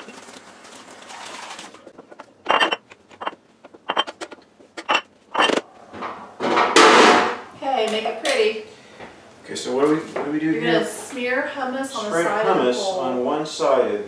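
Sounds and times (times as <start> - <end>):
ceramic bowls clinking on stone: 2.0 - 5.6.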